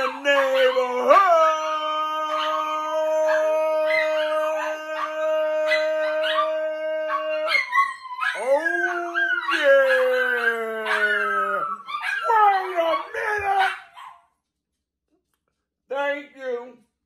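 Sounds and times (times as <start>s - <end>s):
dog howling and yipping: 0.0s - 14.2s.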